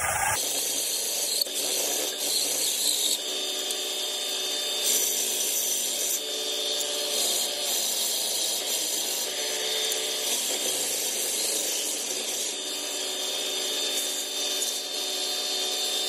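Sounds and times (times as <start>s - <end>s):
belt sander motor hum: 0.0s - 0.4s
steel hissing on sanding belt: 0.0s - 0.4s.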